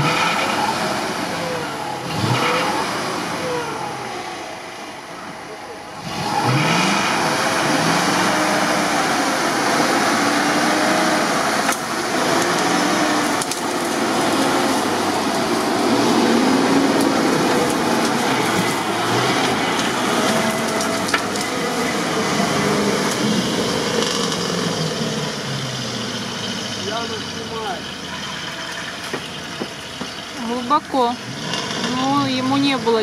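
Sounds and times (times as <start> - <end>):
truck engine under load: 0.0 - 33.0
sharp cracks: 11.6 - 15.4.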